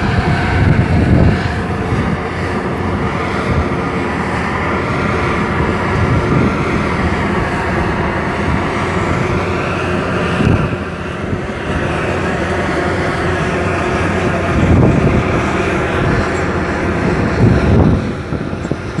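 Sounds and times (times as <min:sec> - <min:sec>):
diesel truck engine rumbling: 0:00.0 - 0:19.0.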